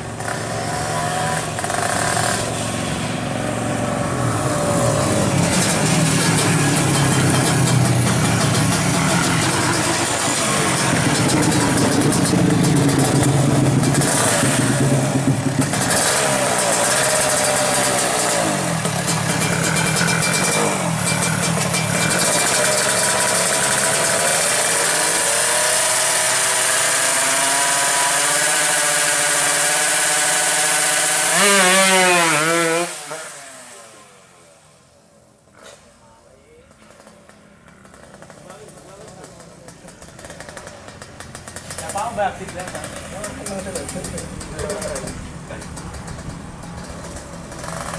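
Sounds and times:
two-stroke motorcycle engine revving: 0.0 - 34.8, 36.7 - 47.9.

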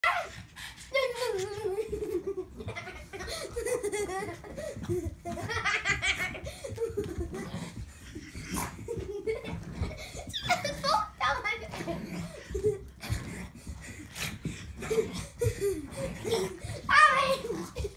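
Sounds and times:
people laughing heartily: 1.0 - 7.8, 8.8 - 11.1.

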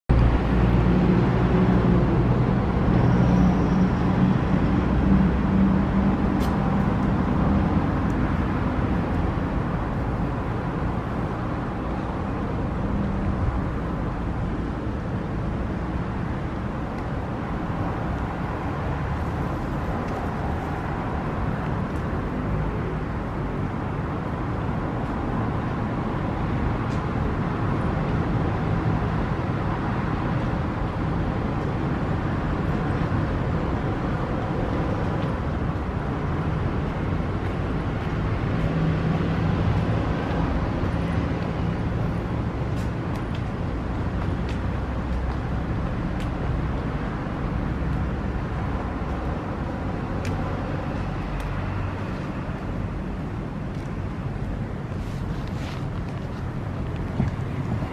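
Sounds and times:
road traffic rumble: 0.1 - 57.9.

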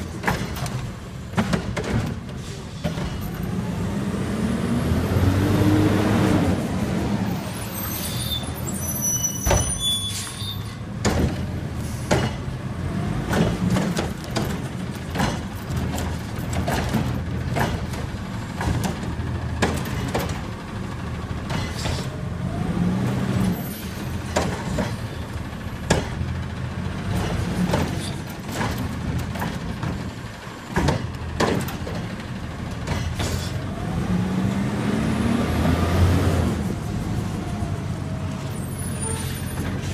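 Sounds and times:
garbage truck diesel engine: 0.0 - 39.9
engine revving: 3.7 - 7.2, 33.6 - 37.4.

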